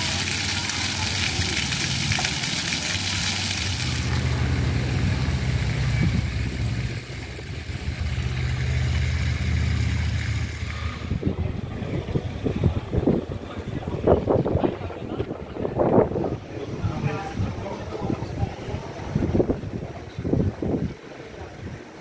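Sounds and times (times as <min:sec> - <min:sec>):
water splashing hiss: 0:00.0 - 0:12.0
low engine hum: 0:01.2 - 0:21.0.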